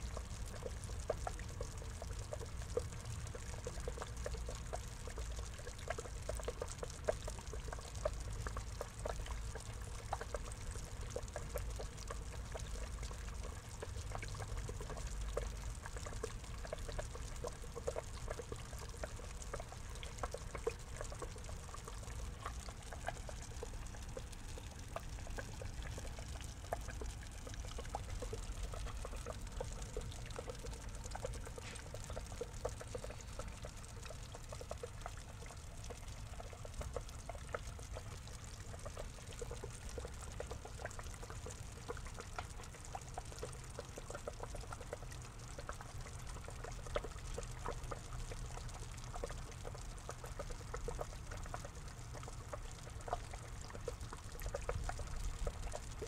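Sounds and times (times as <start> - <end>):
water trickling into a pond: 0.0 - 56.0.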